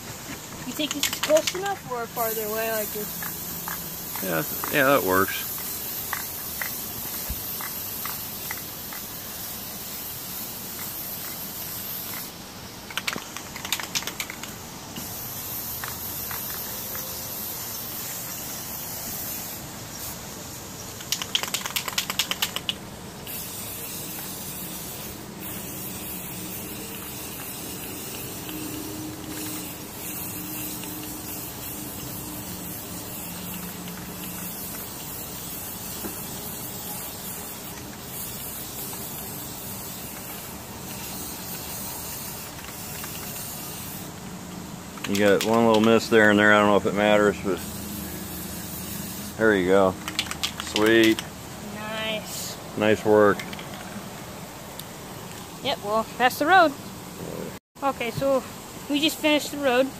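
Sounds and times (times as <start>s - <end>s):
spray paint can hissing: 0.0s - 54.0s, 58.0s - 59.9s
spray can ball rattling: 0.1s - 51.4s, 53.0s - 54.1s.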